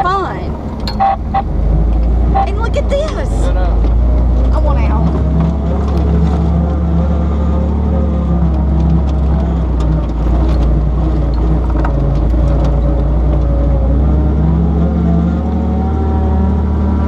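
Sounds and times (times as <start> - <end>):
vehicle engine drone: 0.0 - 17.0
body and suspension rattles: 1.6 - 14.2.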